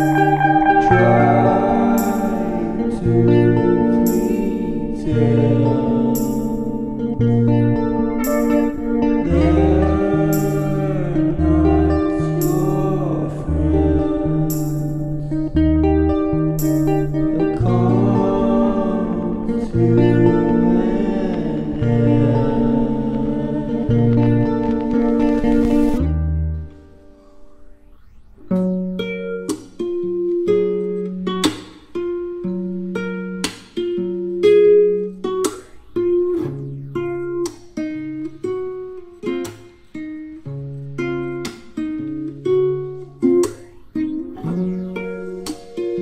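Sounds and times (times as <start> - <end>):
bass: 0.0 - 27.0
plucked guitar: 0.0 - 46.0.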